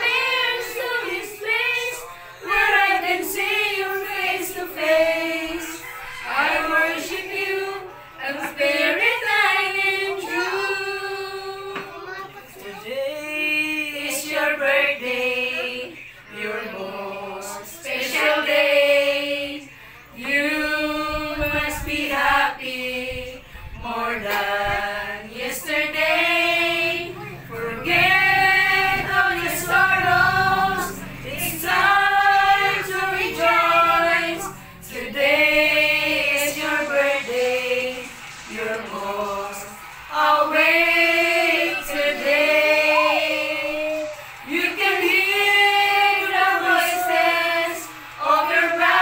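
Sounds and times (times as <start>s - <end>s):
group singing unaccompanied: 0.0s - 49.0s.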